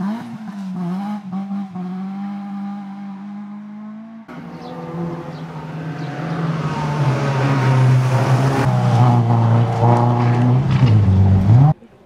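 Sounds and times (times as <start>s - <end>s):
rally car engine at high revs: 0.0s - 11.8s.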